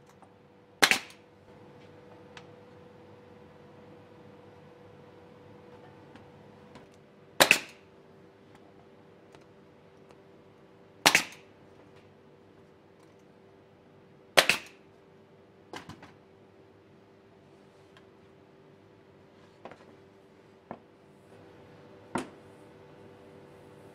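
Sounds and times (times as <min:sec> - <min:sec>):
nail gun firing: 0:00.8 - 0:01.2, 0:07.4 - 0:07.8, 0:11.0 - 0:11.5, 0:14.4 - 0:14.8.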